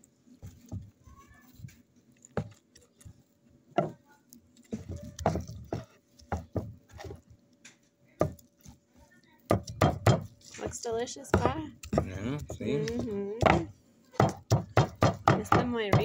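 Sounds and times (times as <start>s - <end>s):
knife chopping on wooden board: 4.8s - 7.2s, 9.5s - 10.3s, 11.3s - 16.0s.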